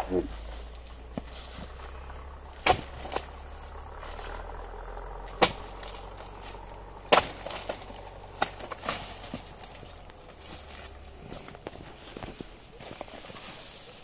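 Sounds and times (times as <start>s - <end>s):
high insect drone: 0.0s - 14.0s
chisel chopping palm frond: 2.6s - 3.3s, 5.3s - 6.0s, 7.1s - 9.8s.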